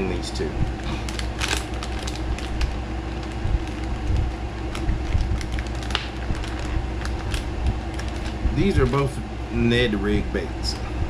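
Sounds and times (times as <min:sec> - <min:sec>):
low hum: 0:00.0 - 0:11.0
plastic packet crinkling: 0:00.8 - 0:09.1.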